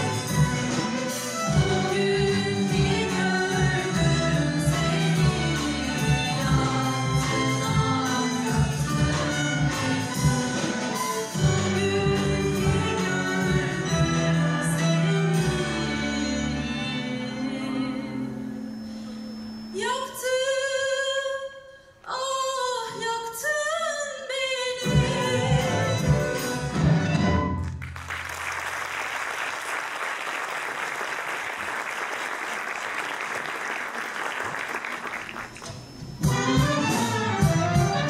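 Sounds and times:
person singing with orchestra: 0.0s - 27.0s
audience applause: 27.7s - 35.9s.

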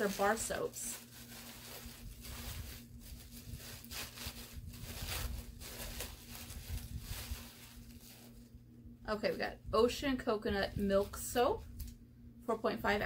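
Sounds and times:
tissue paper rustling: 0.0s - 8.6s.

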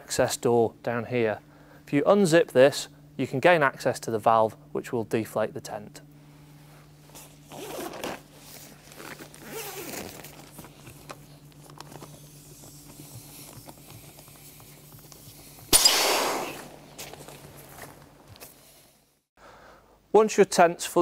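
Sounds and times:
steady low hum: 0.0s - 20.1s
faint handling sounds: 6.4s - 15.7s.

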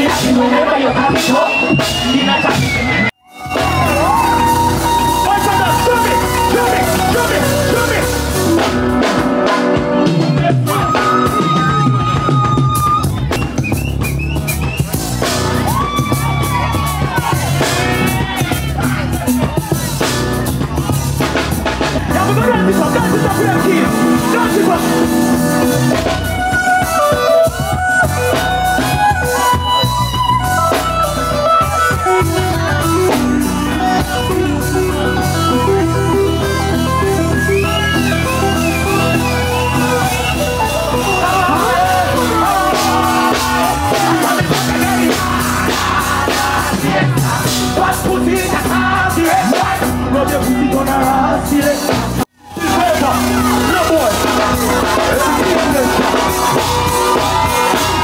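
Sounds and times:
music with bass and melody: 0.0s - 58.0s
person singing over rock band: 41.0s - 52.7s.

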